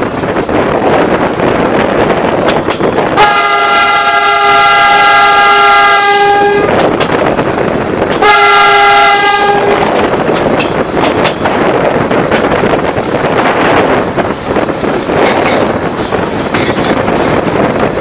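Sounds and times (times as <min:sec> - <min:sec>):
moving train rumble: 0:00.0 - 0:18.0
train horn blowing: 0:03.2 - 0:06.8, 0:08.2 - 0:09.9.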